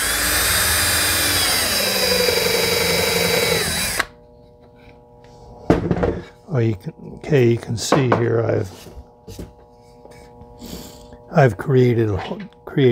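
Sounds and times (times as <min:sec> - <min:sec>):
drill motor whining: 0:00.0 - 0:04.2.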